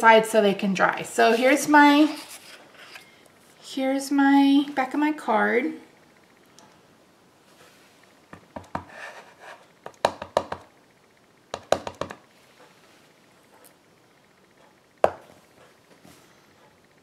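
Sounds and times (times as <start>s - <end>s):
rubber stamp tapping ink pad: 9.9s - 10.7s, 11.5s - 12.2s.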